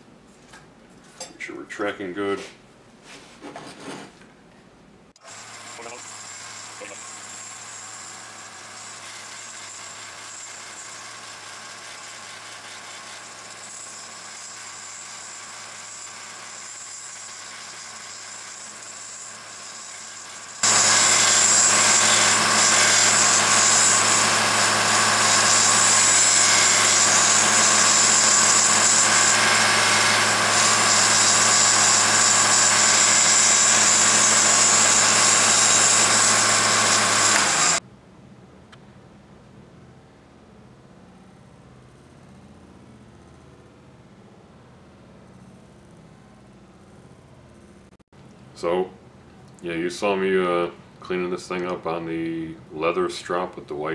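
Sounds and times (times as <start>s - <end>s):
belt grinder running: 5.2s - 37.8s.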